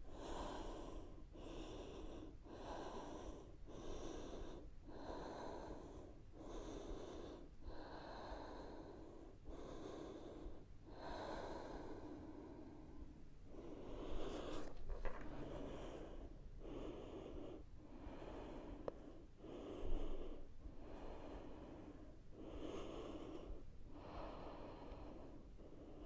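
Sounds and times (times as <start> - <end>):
woman breathing hard: 0.0 - 26.0.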